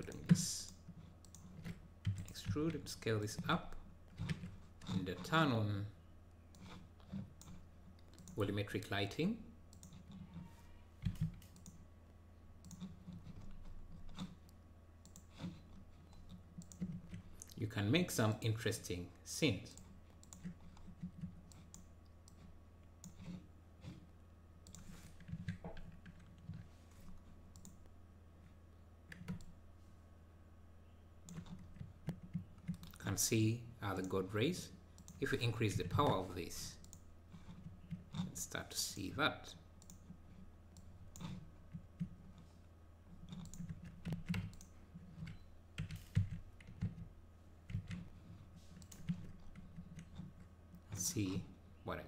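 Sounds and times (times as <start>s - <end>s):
keyboard and mouse clicks: 0.0s - 3.5s, 6.5s - 8.4s, 9.7s - 11.8s, 12.6s - 17.6s, 19.7s - 24.0s, 27.5s - 27.9s, 29.1s - 29.5s, 31.2s - 33.0s, 39.8s - 40.2s, 43.2s - 47.1s, 47.7s - 48.1s, 48.7s - 50.5s
low steady hum: 0.0s - 52.0s.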